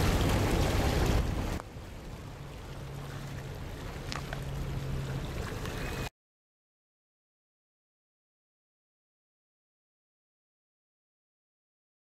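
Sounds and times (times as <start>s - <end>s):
light wind noise: 0.0s - 6.1s
ship engines droning: 0.0s - 6.1s.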